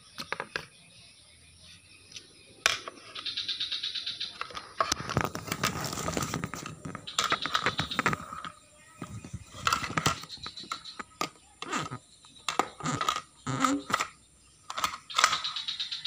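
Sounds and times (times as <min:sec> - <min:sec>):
plastic toy pieces knocking: 0:04.4 - 0:14.1, 0:14.7 - 0:15.6.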